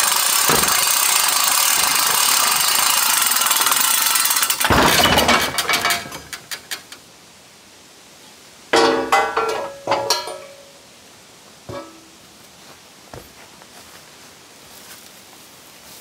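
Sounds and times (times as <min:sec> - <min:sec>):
rattling noise: 0:00.0 - 0:07.0
metal clanks from mill frame: 0:00.3 - 0:06.9, 0:08.8 - 0:10.7, 0:11.7 - 0:12.1.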